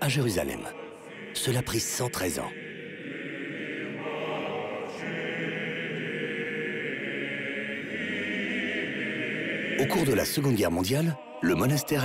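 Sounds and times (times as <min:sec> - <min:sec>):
choir singing slow chant: 0:00.0 - 0:12.0.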